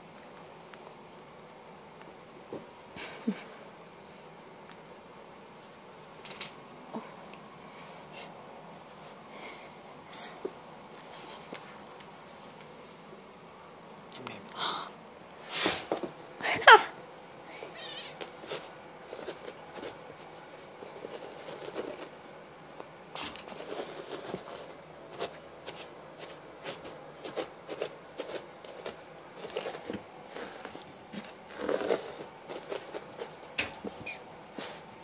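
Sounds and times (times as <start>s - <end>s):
kittens scampering on carpet: 17.7s - 35.0s.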